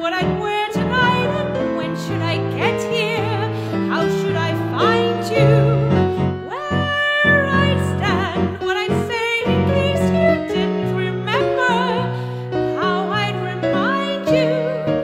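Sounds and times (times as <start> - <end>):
piano accompaniment: 0.0 - 15.0
woman singing with vibrato: 0.0 - 15.0.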